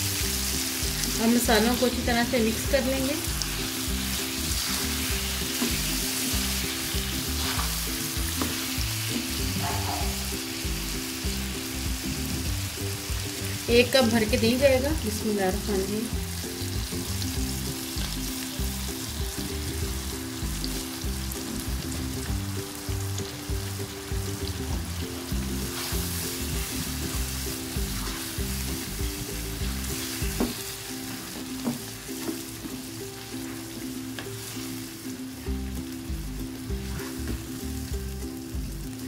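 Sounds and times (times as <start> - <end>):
food sizzling in a wok: 0.0 - 39.0
spatula stirring: 25.5 - 28.6.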